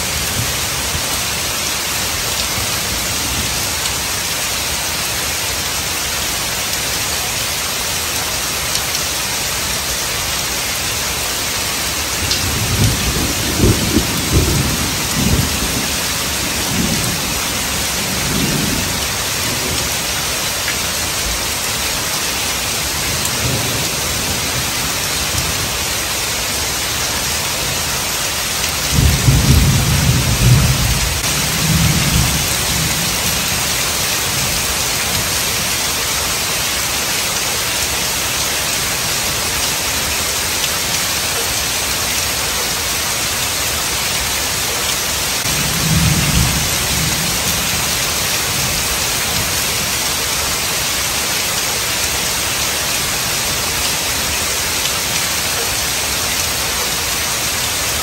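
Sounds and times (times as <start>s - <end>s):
heavy rain on pavement: 0.0s - 58.0s
thunder rumbling: 12.4s - 19.9s, 28.9s - 33.7s.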